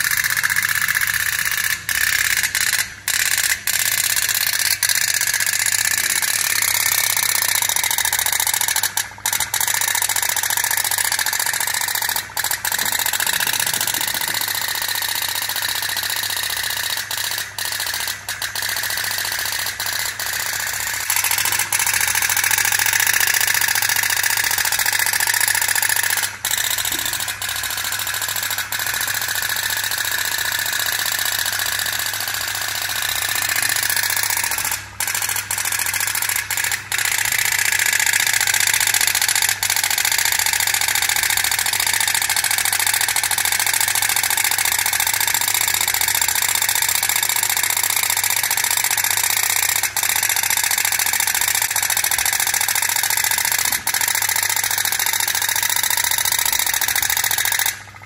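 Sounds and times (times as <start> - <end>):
pop-pop boat putt-putt rattle: 0.0 - 58.0
small electric motor whirring: 0.0 - 58.0.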